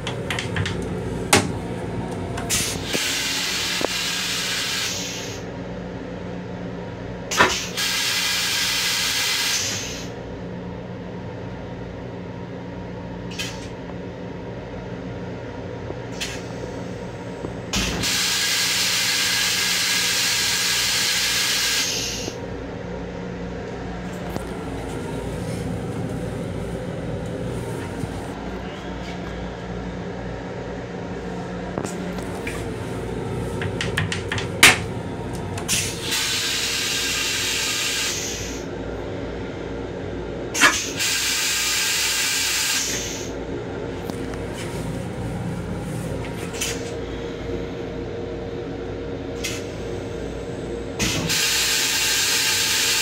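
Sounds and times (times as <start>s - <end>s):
toilet flush hissing: 2.5s - 5.4s, 7.3s - 10.1s, 17.8s - 22.4s, 35.6s - 38.7s, 40.6s - 43.3s, 51.0s - 53.0s
low hum: 22.4s - 36.1s, 43.4s - 51.0s
flush mechanism clicks: 33.6s - 35.8s.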